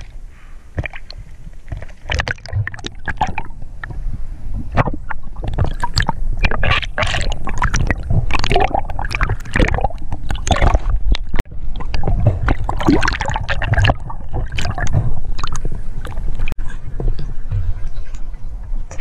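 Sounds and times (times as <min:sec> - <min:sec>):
low rumble: 0:00.0 - 0:19.0
underwater gurgling and sloshing: 0:00.0 - 0:19.0.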